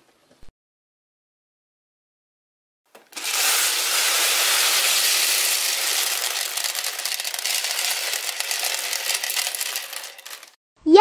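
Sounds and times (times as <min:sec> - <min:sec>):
plastic beads spilling on a tabletop: 0:02.9 - 0:10.6.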